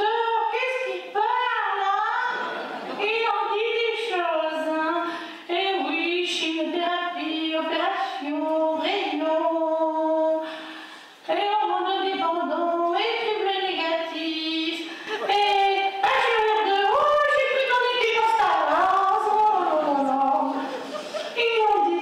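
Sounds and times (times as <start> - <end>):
woman singing unaccompanied: 3.0 - 10.4, 11.3 - 20.7, 21.4 - 22.0.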